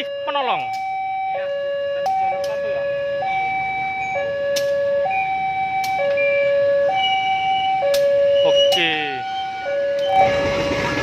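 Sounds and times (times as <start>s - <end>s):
two-tone level crossing alarm: 0.0s - 11.0s
sharp clicks: 4.5s - 4.8s.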